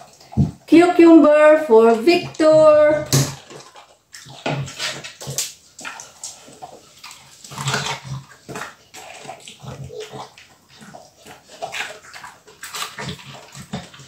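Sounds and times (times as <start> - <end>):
dog crunching cucumber: 3.0 - 14.0.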